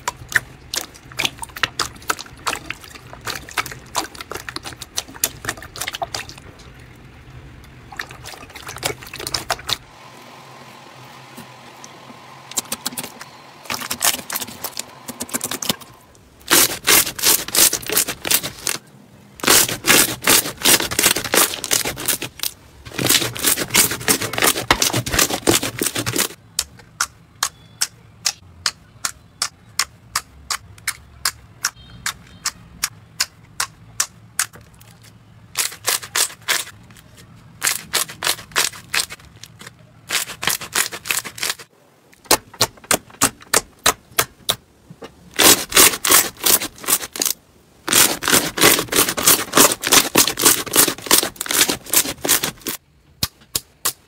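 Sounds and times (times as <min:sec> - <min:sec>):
hands squishing slime: 0:00.0 - 0:06.8, 0:07.8 - 0:09.9, 0:16.4 - 0:18.8, 0:19.4 - 0:35.0, 0:47.9 - 0:52.8
slime crackling and popping: 0:16.4 - 0:18.8, 0:19.4 - 0:26.7, 0:45.4 - 0:52.8.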